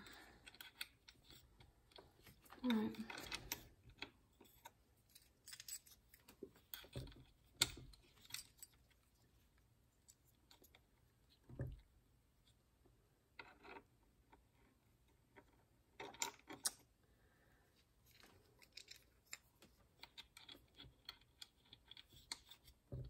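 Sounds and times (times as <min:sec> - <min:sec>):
small metal parts clicking: 0:00.0 - 0:09.1, 0:18.1 - 0:22.7.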